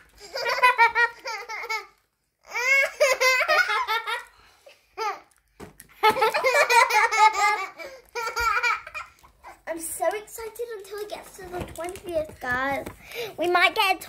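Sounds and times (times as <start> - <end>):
girls laughing: 0.2 - 1.9, 2.5 - 4.4, 6.0 - 9.2.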